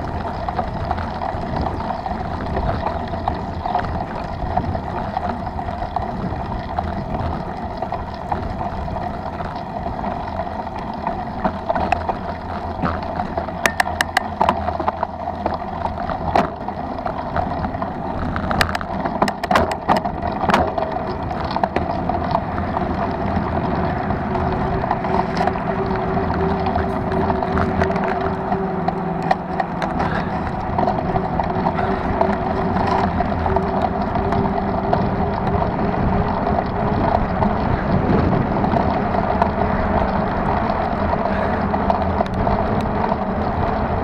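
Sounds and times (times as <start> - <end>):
bike rattling over gravel: 0.0 - 44.0
sharp clicks and knocks: 0.0 - 44.0
wind on microphone: 0.0 - 44.0.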